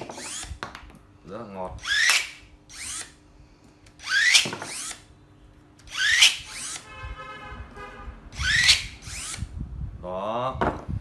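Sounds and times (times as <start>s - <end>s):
electric pruning shears whining: 1.8s - 3.2s, 5.8s - 6.9s, 8.3s - 9.5s.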